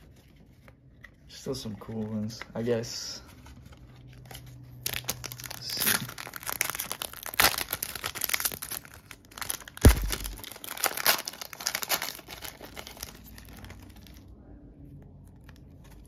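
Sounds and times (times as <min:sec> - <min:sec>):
foil wrapper crinkling and tearing: 0:04.2 - 0:14.3
sharp knock: 0:09.8 - 0:10.4.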